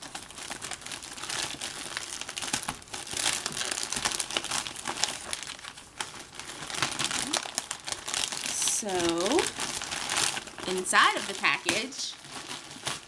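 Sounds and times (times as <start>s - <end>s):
package wrapping crinkling: 0.0s - 13.0s.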